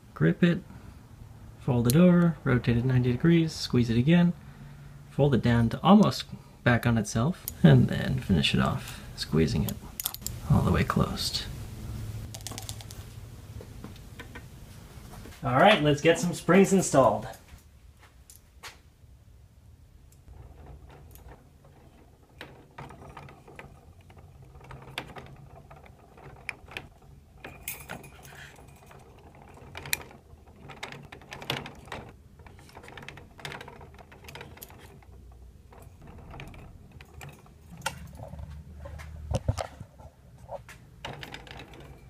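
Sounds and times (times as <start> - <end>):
light metallic clicks and clinks: 27.4 - 30.0.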